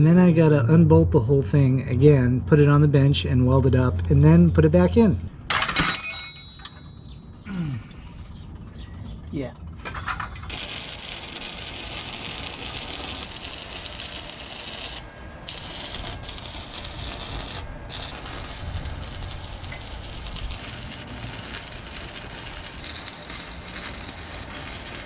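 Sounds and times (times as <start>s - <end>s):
arc welding crackle and hiss: 10.4s - 25.0s.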